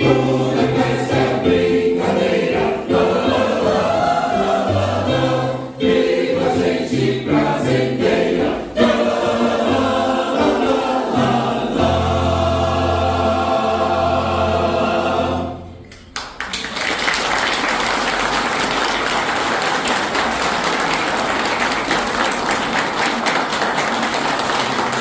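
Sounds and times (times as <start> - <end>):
choir holding a chord: 0.0 - 15.9
audience applause: 16.1 - 25.0.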